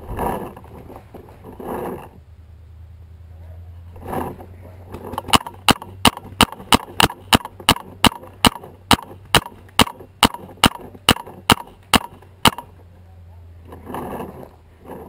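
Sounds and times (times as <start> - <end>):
rustle: 0.0 - 15.0
paintball marker firing shots: 5.2 - 12.8.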